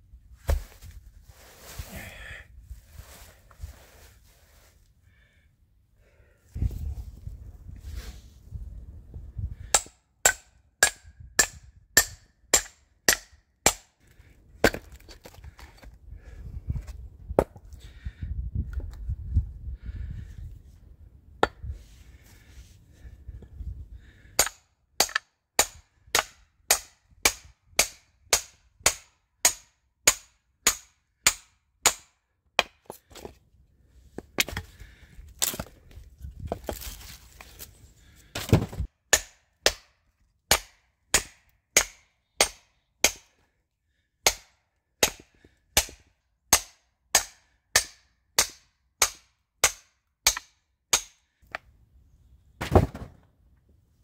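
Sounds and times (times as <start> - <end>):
axe chopping wood: 9.6 - 13.9, 24.4 - 33.2, 38.3 - 39.9, 40.5 - 43.3, 44.2 - 51.6, 52.6 - 53.2.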